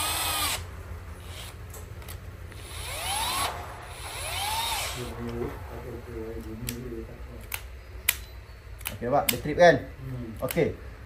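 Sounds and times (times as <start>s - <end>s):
cordless drill motor whine: 0.0s - 0.6s, 2.6s - 5.0s.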